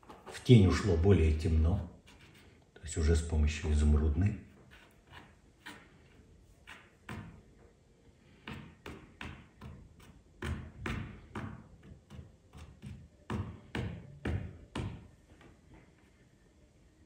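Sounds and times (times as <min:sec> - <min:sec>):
paintbrush dabbing on canvas: 0:04.5 - 0:07.4.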